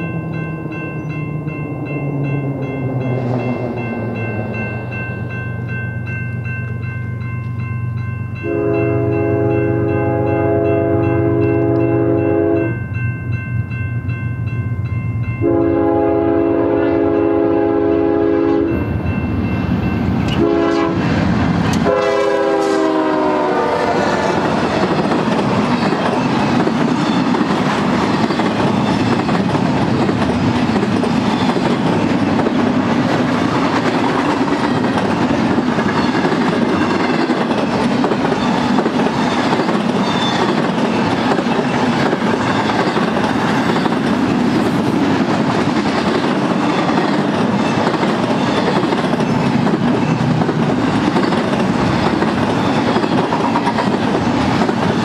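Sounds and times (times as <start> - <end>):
diesel locomotive engines rumbling: 0.0 - 55.0
train air horn blasts: 8.4 - 12.8, 15.4 - 18.9, 20.3 - 21.1, 21.8 - 24.6
train wheels clacking on rails: 15.4 - 55.0.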